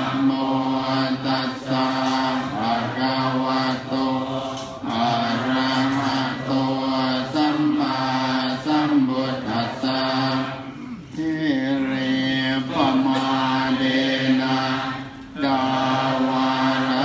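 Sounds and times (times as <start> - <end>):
group chanting in unison: 0.0 - 17.0.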